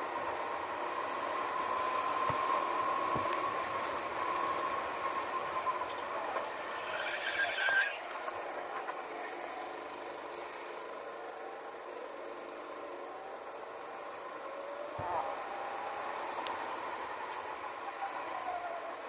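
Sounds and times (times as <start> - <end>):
high tyre squeal: 0.0 - 10.0
go-kart engine running: 0.0 - 17.4.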